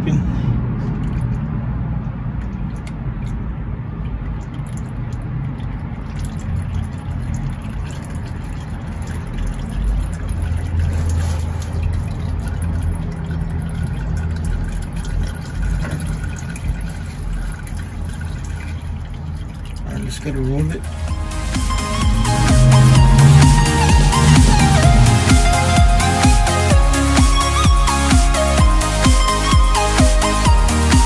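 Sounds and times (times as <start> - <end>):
oil dripping into pan: 0.8 - 22.1
steady low rumble: 20.7 - 26.8.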